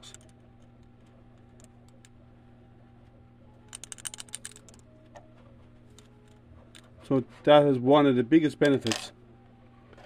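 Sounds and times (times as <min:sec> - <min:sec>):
faint steady hum: 0:00.0 - 0:10.0
plastic ball rattling in cage: 0:03.7 - 0:04.8.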